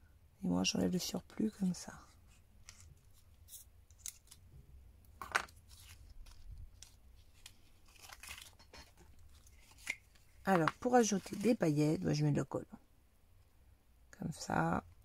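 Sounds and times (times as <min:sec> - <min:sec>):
paper rustling: 0:02.3 - 0:04.6, 0:05.2 - 0:11.6.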